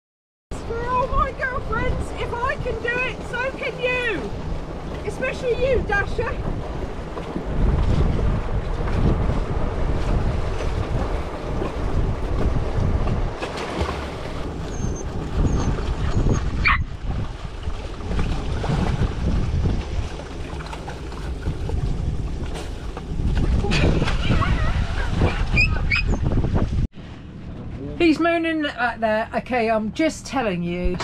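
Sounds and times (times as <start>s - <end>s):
water around boat: 0.5s - 31.0s
wind buffeting microphone: 0.5s - 31.0s
short high squeak: 14.7s - 16.9s, 25.3s - 26.3s.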